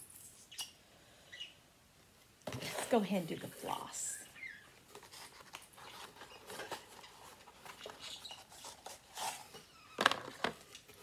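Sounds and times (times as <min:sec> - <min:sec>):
packaging crinkling and rustling: 0:04.8 - 0:11.0.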